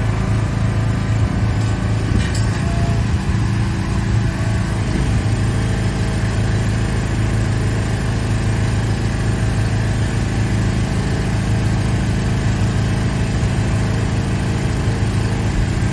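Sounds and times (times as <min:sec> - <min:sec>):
engine running steadily: 0:00.0 - 0:15.9.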